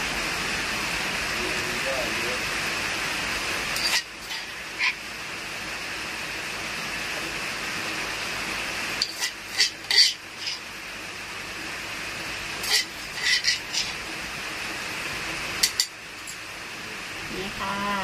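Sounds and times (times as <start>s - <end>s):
metal spoon scraping stone mortar: 3.8s - 5.0s, 9.0s - 10.6s, 12.6s - 14.0s.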